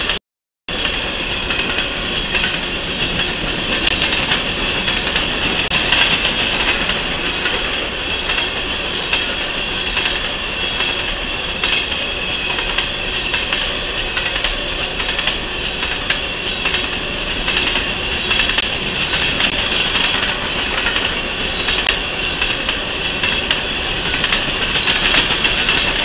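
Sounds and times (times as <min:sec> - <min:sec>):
freight train wheels clattering: 0:00.0 - 0:26.0.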